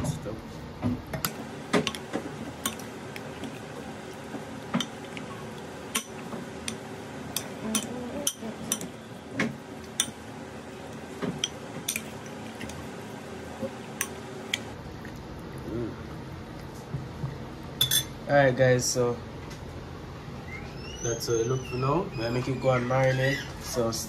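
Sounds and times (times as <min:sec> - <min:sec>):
metal spoon clinking in bowl: 0:17.8 - 0:18.1.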